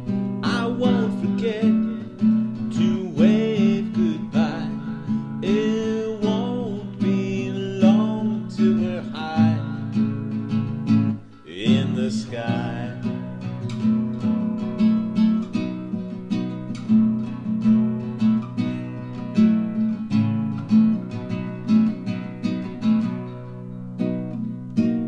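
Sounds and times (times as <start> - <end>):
strummed acoustic guitar: 0.0 - 25.0.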